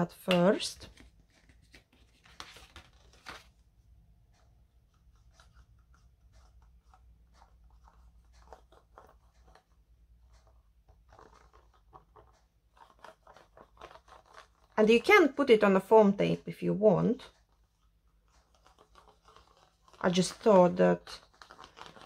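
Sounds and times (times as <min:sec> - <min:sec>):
paper card rustling and tapping: 0:00.0 - 0:03.7, 0:04.8 - 0:14.8, 0:18.2 - 0:22.0.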